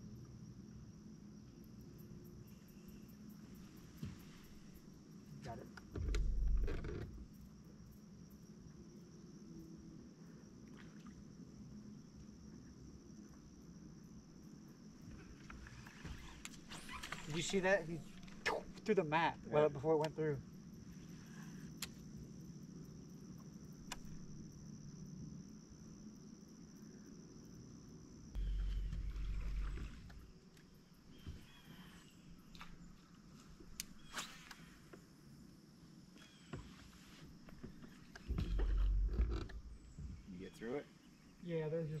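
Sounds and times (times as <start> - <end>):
insects buzzing: 0.0 - 42.0
faint low hum: 17.3 - 36.5
faint ticks: 21.6 - 22.1
click: 23.8 - 24.1
steady low hum: 28.3 - 32.9, 37.3 - 41.3.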